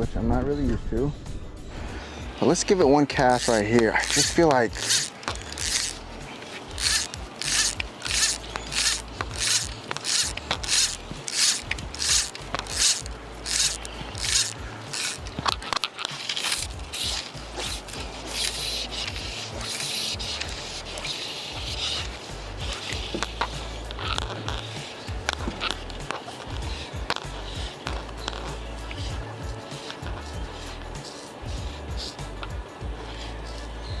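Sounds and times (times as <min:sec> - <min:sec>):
fly line rasping through rod guides: 0:02.1 - 0:34.0.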